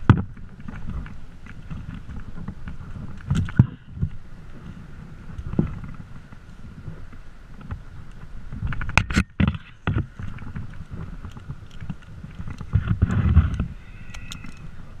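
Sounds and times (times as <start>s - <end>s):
rope and hardware clicks: 0.0s - 15.0s
rustling: 0.0s - 15.0s
wind on microphone: 0.0s - 15.0s.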